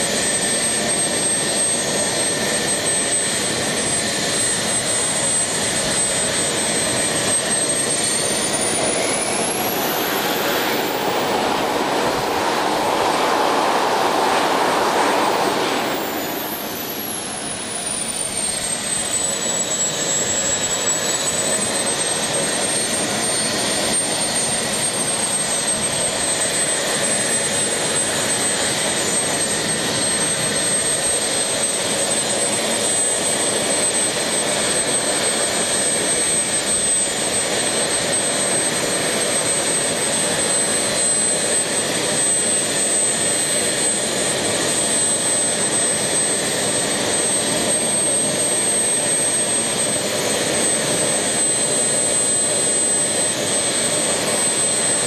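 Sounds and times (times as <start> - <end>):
model jet turbine whining: 0.0 - 55.0.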